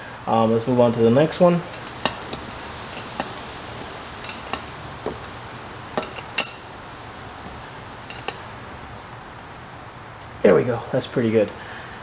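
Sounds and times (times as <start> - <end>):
wrench clinking on metal fitting: 1.6 - 3.5, 4.2 - 4.8, 6.0 - 6.8, 8.1 - 8.4.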